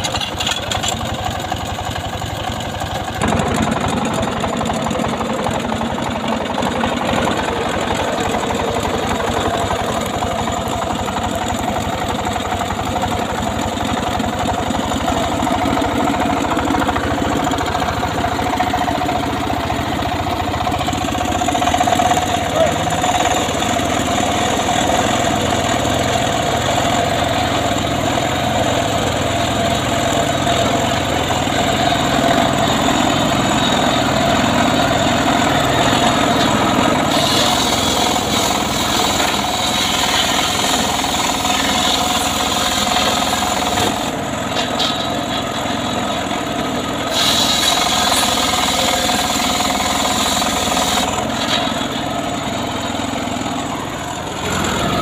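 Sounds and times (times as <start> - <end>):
sawmill engine running with whine: 0.0 - 55.0.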